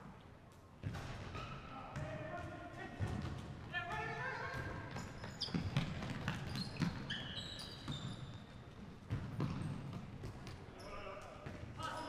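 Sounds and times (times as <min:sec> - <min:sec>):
sneaker squeaks: 0:00.8 - 0:02.0, 0:04.0 - 0:12.0.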